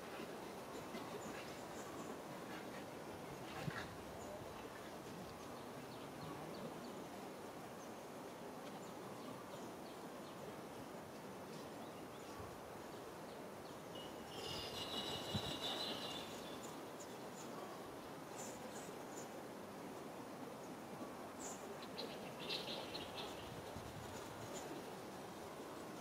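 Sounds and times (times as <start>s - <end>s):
steady background hiss: 0.0s - 26.0s
faint high chirps: 13.9s - 16.8s.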